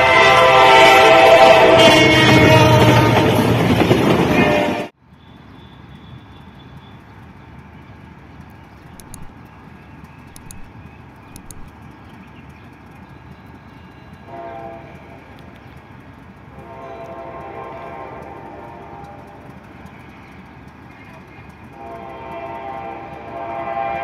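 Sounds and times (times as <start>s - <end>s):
diesel locomotive horn blasts: 0.0s - 5.0s, 14.2s - 15.2s, 16.6s - 19.5s, 21.7s - 24.0s
low rumble of trains: 0.0s - 24.0s.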